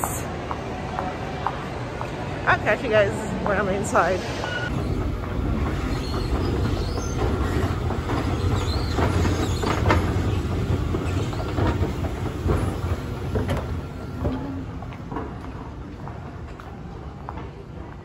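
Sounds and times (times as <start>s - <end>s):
escalator steps clicking and rattling: 4.7s - 16.7s.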